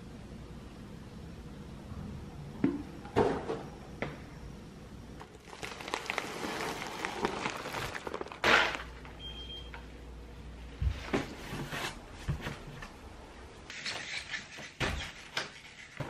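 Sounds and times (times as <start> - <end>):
plastic bag crinkling: 5.2 - 9.2
short high beep: 9.2 - 9.7.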